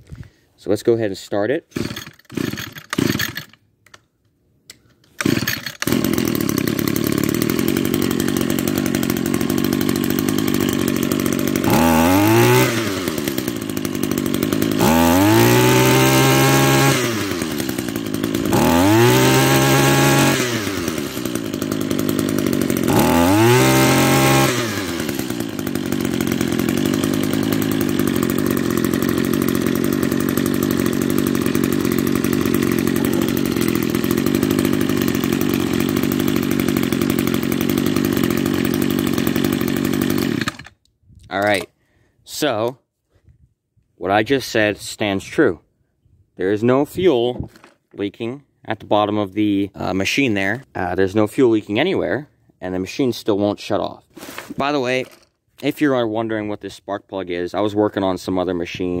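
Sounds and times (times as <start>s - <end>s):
string trimmer engine revving: 1.7s - 3.6s, 5.1s - 40.8s, 54.2s - 55.7s.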